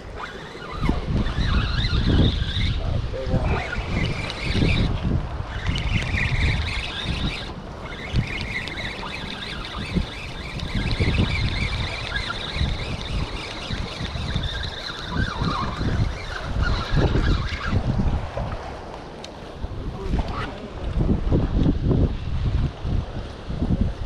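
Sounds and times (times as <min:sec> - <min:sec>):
wind buffeting microphone: 0:00.0 - 0:24.0.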